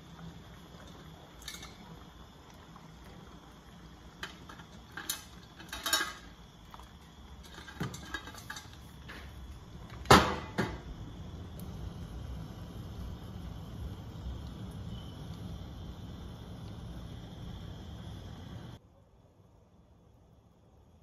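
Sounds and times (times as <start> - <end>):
metal colander clattering on pot: 1.4 - 1.8, 4.2 - 6.3, 7.4 - 8.8.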